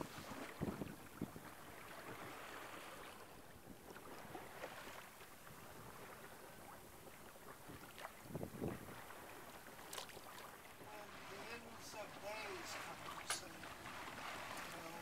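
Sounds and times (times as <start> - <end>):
wind on microphone: 0.0 - 2.9, 5.5 - 9.6
water washing past boat hull: 0.0 - 15.0.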